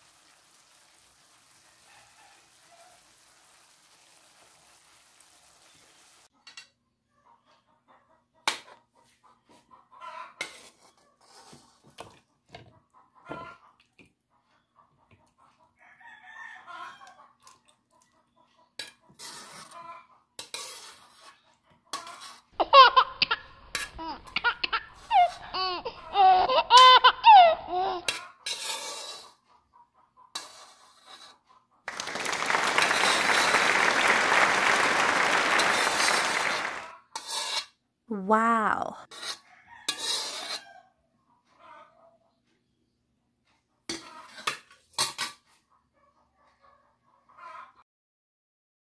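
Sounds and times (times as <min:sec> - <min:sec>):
food scraped onto plate: 0:10.4 - 0:11.9, 0:18.8 - 0:19.8, 0:20.4 - 0:22.4, 0:28.1 - 0:29.4, 0:30.4 - 0:31.4, 0:37.2 - 0:37.8, 0:39.1 - 0:40.7
person squealing and laughing: 0:22.6 - 0:28.0.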